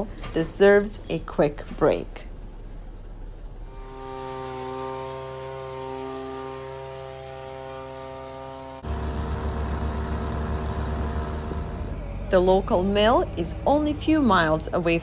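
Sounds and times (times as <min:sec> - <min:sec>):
leaf blower running: 0:03.7 - 0:14.5
low rumble: 0:08.6 - 0:15.0.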